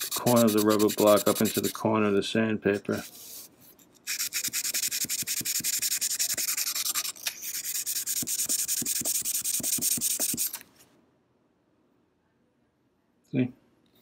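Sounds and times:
sandpaper rasping on steel blade: 0.0 - 1.8, 4.1 - 10.6.

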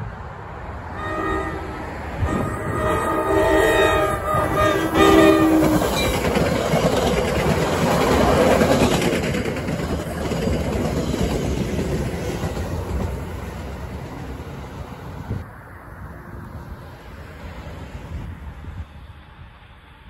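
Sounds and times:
train horn blasts: 0.9 - 6.1
train wheels clacking over rail joints: 4.3 - 13.6.

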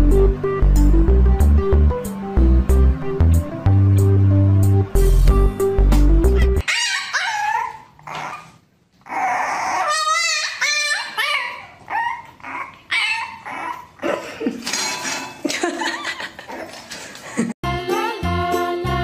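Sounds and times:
puppy whining and yipping: 6.3 - 14.0.

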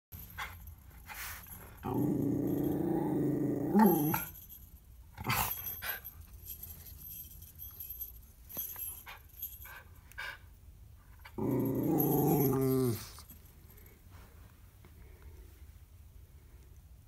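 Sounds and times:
dog growling: 1.8 - 4.3, 11.3 - 13.2.

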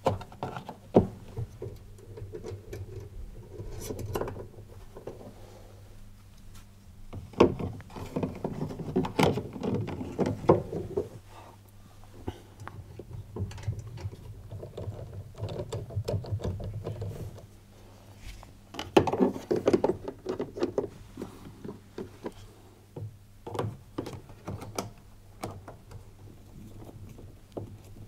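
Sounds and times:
plastic fan parts clicking and rattling: 12.6 - 17.5.

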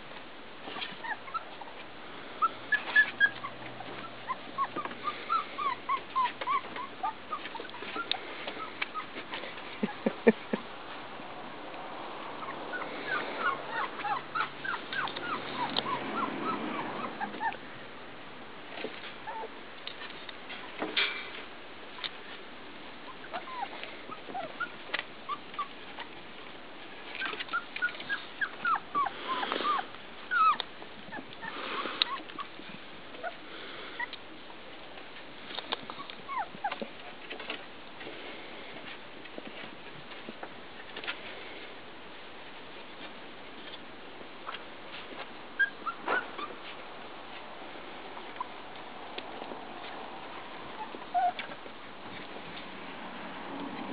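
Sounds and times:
rustling: 0.0 - 53.9
puppies whimpering: 0.8 - 1.8, 2.4 - 10.7, 12.3 - 17.7, 19.2 - 19.6, 23.0 - 26.2, 27.1 - 34.2, 35.7 - 37.6, 45.6 - 46.8, 48.1 - 50.0, 50.6 - 52.3.

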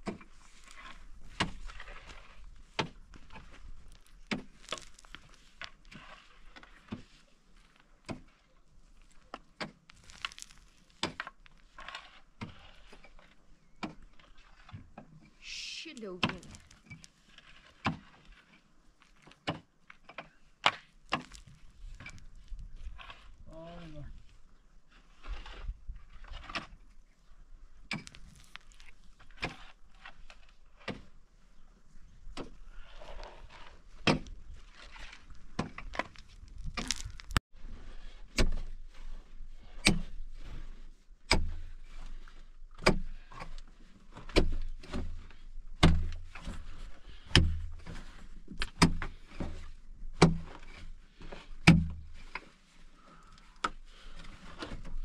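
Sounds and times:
pickaxe striking stony earth: 9.6 - 11.4, 35.6 - 37.4, 38.3 - 38.8, 39.7 - 40.2, 41.3 - 41.7, 45.8 - 49.6, 50.2 - 50.8, 51.6 - 52.2.

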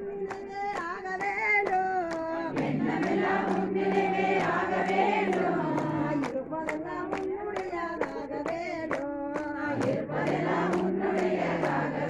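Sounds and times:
group singing devotional song: 0.0 - 12.0
hand claps: 0.1 - 12.0.

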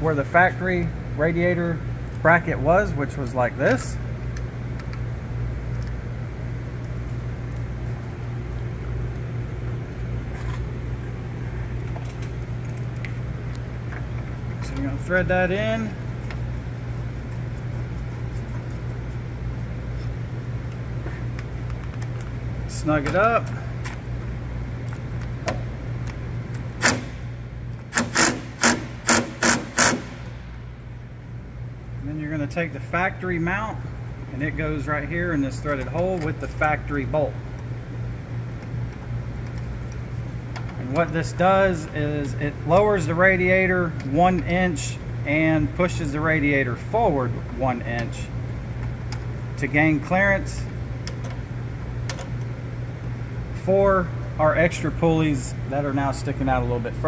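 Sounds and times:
low shop hum: 0.0 - 57.0
cordless power tool bursts: 27.8 - 30.3.

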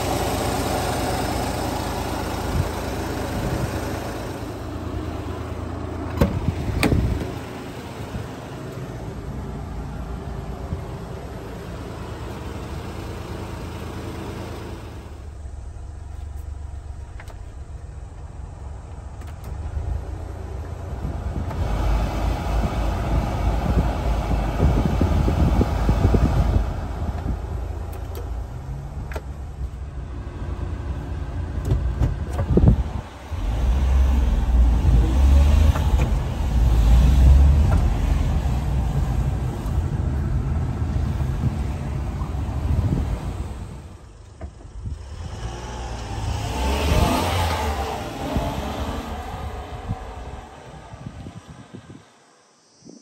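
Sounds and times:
small engine idling: 0.0 - 6.0
blower fan rushing: 18.7 - 29.6
low rumble: 47.7 - 52.1.

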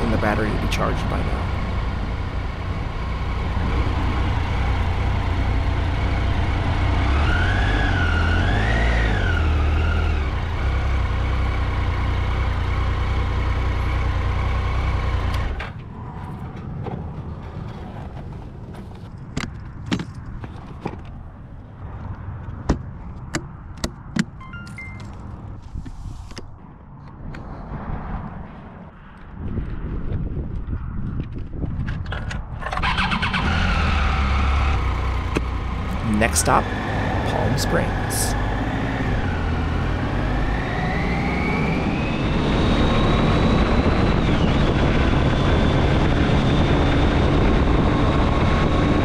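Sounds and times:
wind and road noise: 0.0 - 49.0
motorcycle engine running: 0.1 - 15.6.

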